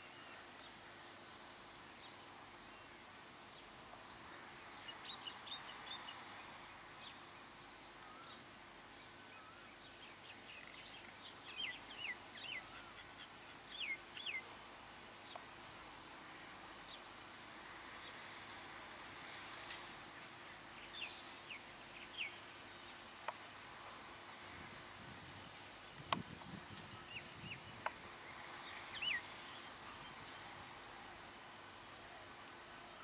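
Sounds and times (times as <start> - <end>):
outdoor background noise: 0.0 - 33.0
birds chirping: 24.6 - 30.6.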